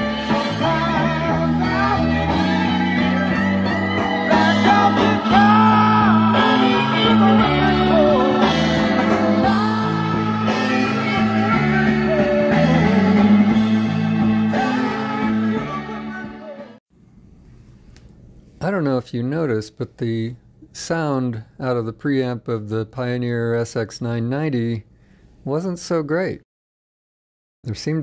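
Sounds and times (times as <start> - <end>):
song with singing over loudspeaker: 0.0 - 16.8.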